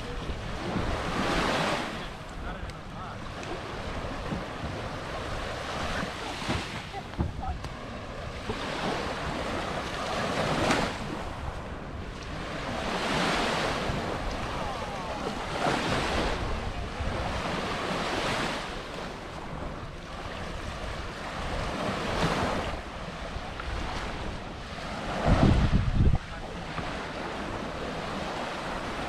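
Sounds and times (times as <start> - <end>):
waves breaking on shore: 0.0 - 29.0
wind rumbling on microphone: 0.0 - 29.0.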